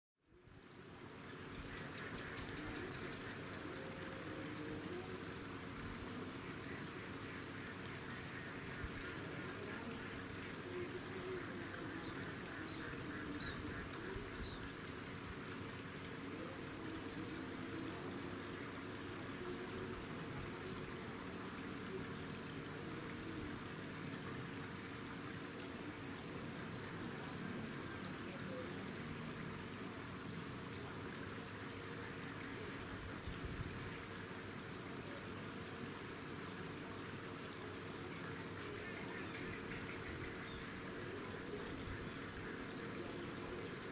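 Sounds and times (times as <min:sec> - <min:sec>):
insects high-pitched drone: 0:00.4 - 0:43.9
insect trills: 0:27.8 - 0:43.9.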